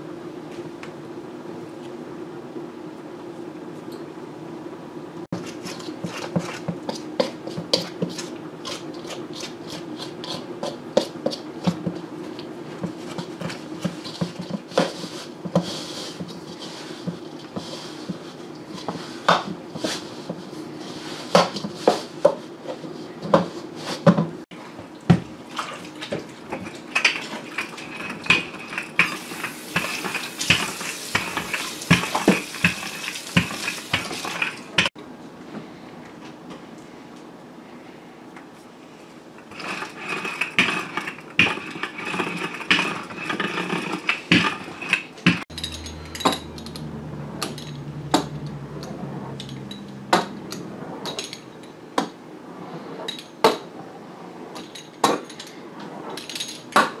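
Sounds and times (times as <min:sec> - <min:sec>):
utensil scraping metal bowl: 0:05.4 - 0:11.8, 0:13.0 - 0:20.2, 0:39.5 - 0:51.6
bowl knocking: 0:45.5 - 0:50.6
steady low hum: 0:45.5 - 0:52.4.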